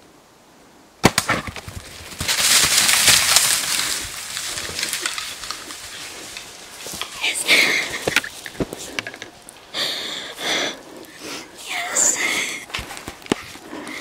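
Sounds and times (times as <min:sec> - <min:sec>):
bow shot crack: 0:01.0 - 0:01.6
bear crashing through brush: 0:01.0 - 0:09.6.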